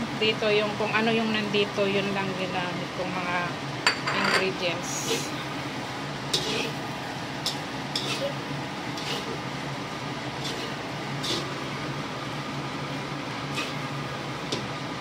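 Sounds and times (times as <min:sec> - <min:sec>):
steady background hum: 0:00.0 - 0:15.0
metal spatula scraping a wok: 0:06.3 - 0:06.8, 0:07.4 - 0:09.4, 0:10.4 - 0:11.6, 0:13.5 - 0:13.9.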